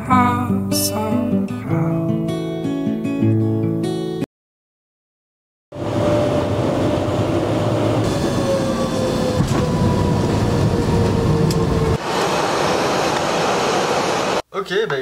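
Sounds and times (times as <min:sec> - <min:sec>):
engine whine falling in pitch: 0:05.7 - 0:14.4
airliner engines rushing: 0:05.8 - 0:14.4.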